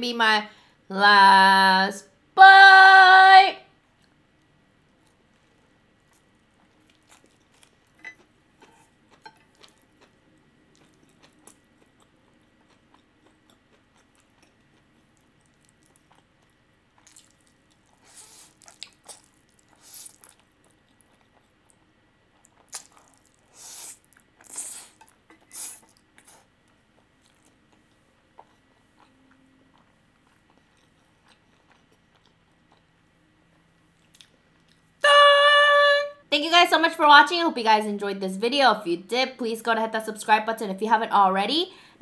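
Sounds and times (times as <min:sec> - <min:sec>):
person slurping and chewing: 0:05.1 - 0:21.6, 0:22.5 - 0:26.5.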